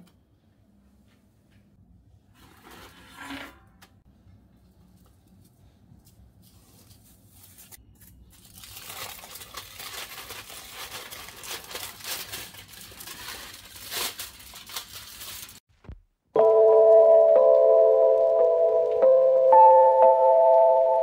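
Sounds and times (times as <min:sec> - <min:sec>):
foil crinkling: 0:07.0 - 0:16.0
chime-like music: 0:16.4 - 0:21.0.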